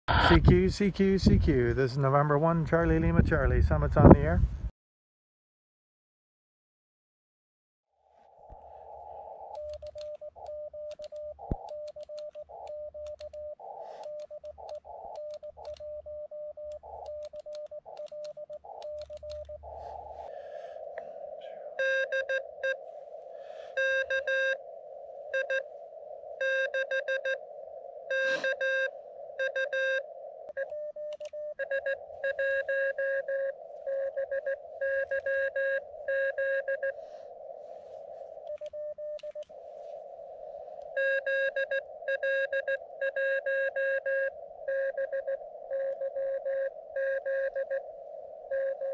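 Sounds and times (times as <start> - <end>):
radio hiss: 0.1 - 4.4, 8.4 - 48.9
buzzy morse code tone: 8.8 - 20.7, 21.7 - 48.9
morse code tone: 9.4 - 20.1, 21.7 - 22.9, 23.7 - 24.7, 25.3 - 37.1, 38.0 - 39.6, 40.9 - 48.9.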